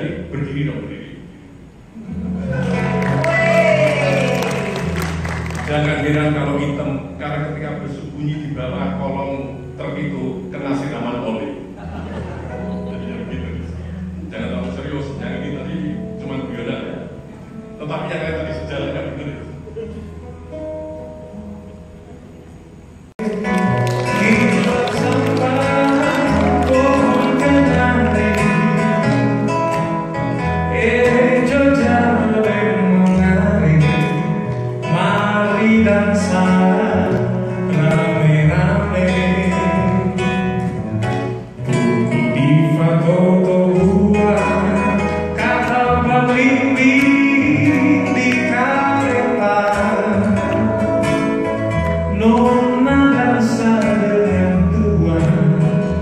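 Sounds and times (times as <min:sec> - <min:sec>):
acoustic guitar: 0:00.0 - 0:56.0
person singing: 0:23.2 - 0:29.4, 0:41.6 - 0:51.2.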